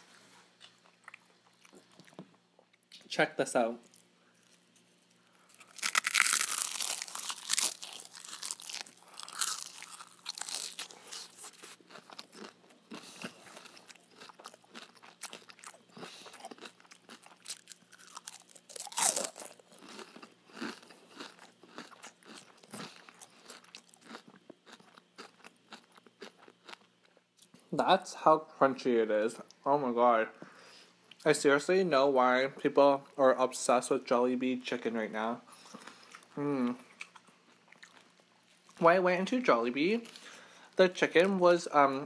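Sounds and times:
crunching and chewing fried chicken: 0.5s - 3.0s, 3.8s - 27.6s, 35.5s - 38.9s.

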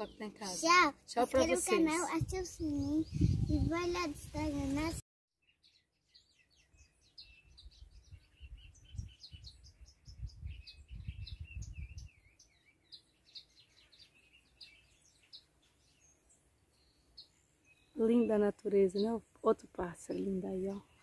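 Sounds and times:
songbirds chirping: 0.0s - 21.0s
wind rumble on microphone: 1.4s - 5.0s, 7.3s - 12.5s.

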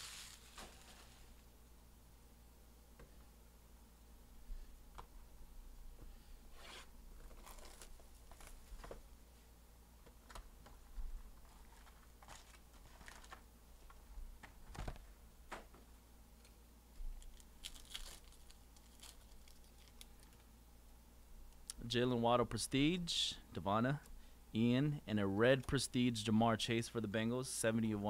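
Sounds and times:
wrapper tearing and crinkling: 0.0s - 1.2s, 7.3s - 8.6s, 17.2s - 20.3s.

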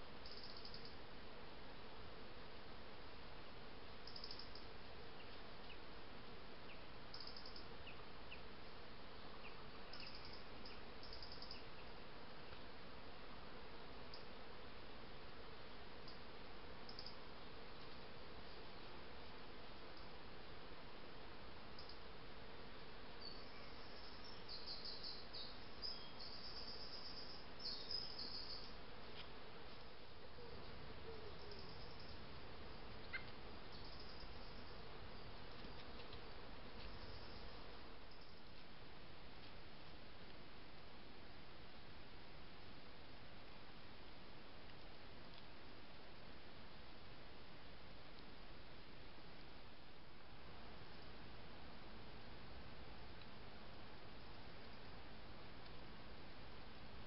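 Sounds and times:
microphone hiss: 0.0s - 57.0s
insect chirping: 0.1s - 1.0s, 4.0s - 5.9s, 6.6s - 8.5s, 9.2s - 12.0s, 14.0s - 14.4s, 16.0s - 18.8s, 21.7s - 22.1s, 23.1s - 28.8s, 30.2s - 38.6s.

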